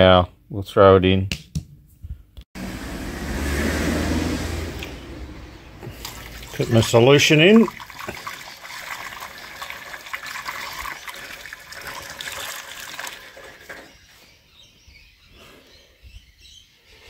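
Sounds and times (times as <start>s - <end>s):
liquid pouring through funnel: 5.8s - 14.0s.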